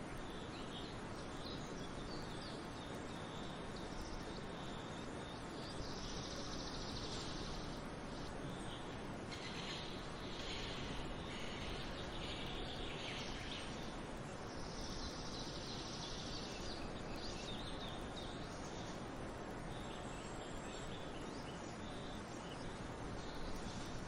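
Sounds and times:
even hiss: 5.8 - 17.6.

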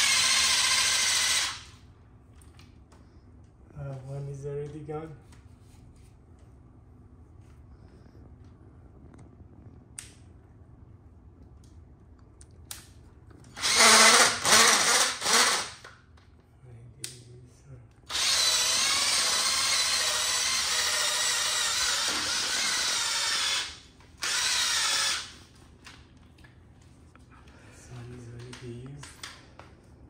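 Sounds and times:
electric drill sanding tile: 0.0 - 1.6, 13.6 - 15.8, 18.1 - 25.3.

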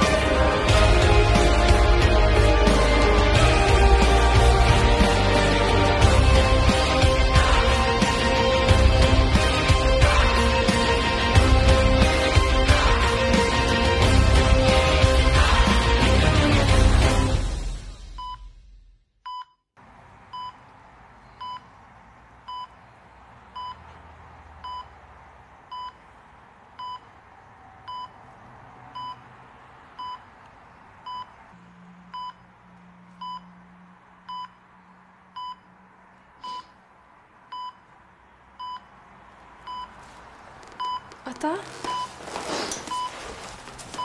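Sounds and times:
music: 0.0 - 19.0
heart monitor beeping: 32.1 - 32.4, 33.2 - 33.5, 39.7 - 40.0, 40.6 - 44.0.

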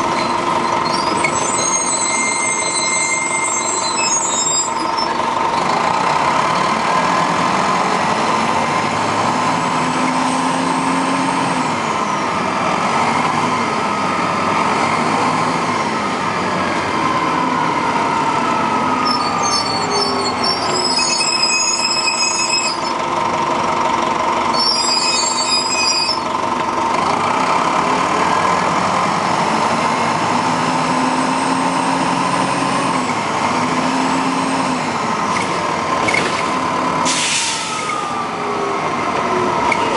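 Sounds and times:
bus diesel engine: 0.0 - 39.9.

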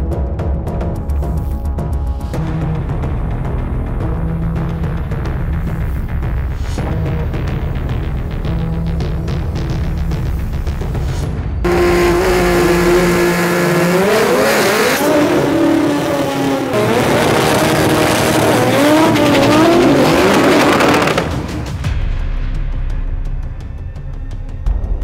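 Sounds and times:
car engine revving hard: 11.7 - 21.8.

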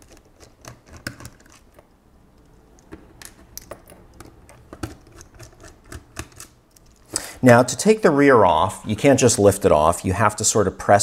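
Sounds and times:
screwdriver clicks and taps: 2.4 - 7.0.

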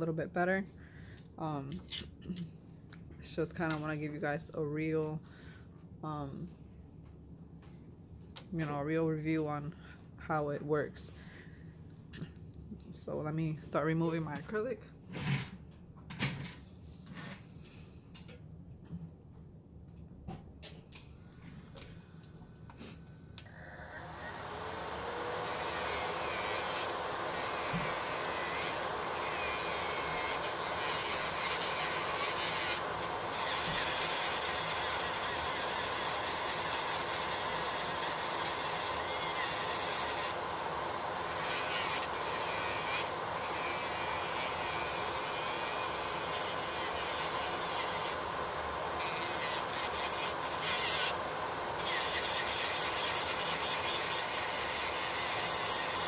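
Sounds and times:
electric nail drill grinding: 21.0 - 56.0
dust collector fan whir: 21.2 - 56.0.

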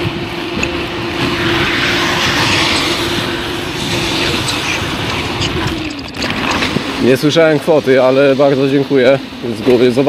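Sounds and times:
wind noise: 0.0 - 7.1
road noise: 0.0 - 7.2.

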